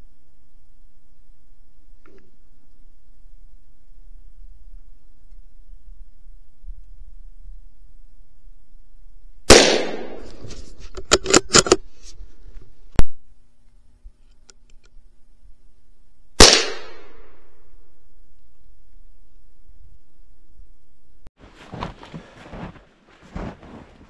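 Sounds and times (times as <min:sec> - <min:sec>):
rifle shots with echo: 0:09.5 - 0:10.3, 0:16.4 - 0:17.4.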